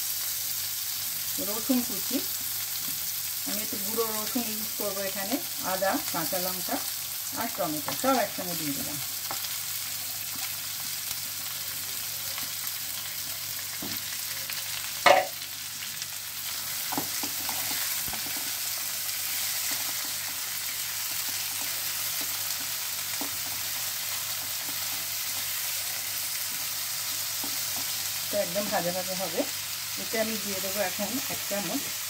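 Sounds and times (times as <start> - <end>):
food sizzling in oil: 0.0 - 32.0.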